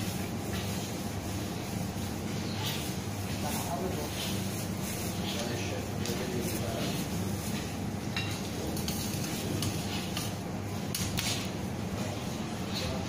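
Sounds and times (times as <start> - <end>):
low background hum: 0.0 - 13.0
kitchen utensils and dishes clinking: 2.4 - 11.6.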